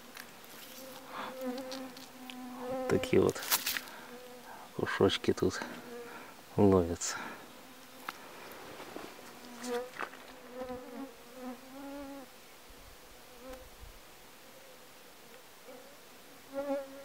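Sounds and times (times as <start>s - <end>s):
flying insect buzzing: 0.0s - 6.5s, 7.2s - 17.0s.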